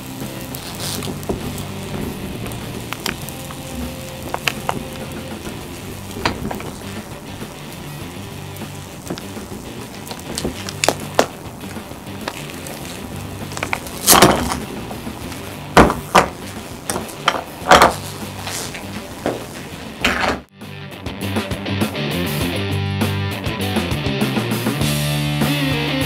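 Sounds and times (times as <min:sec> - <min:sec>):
quiet background music: 0:00.0 - 0:20.5.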